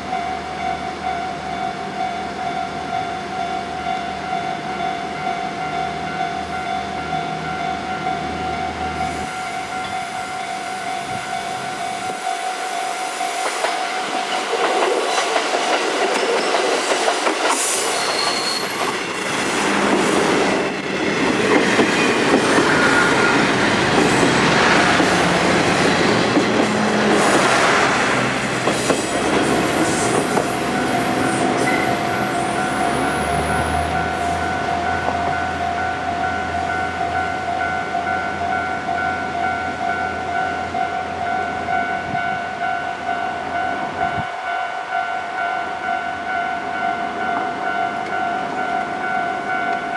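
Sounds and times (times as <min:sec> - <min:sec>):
level-crossing warning bell: 0:00.0 - 0:19.6, 0:20.2 - 0:49.9
train wheels clacking over rail joints: 0:13.4 - 0:33.9.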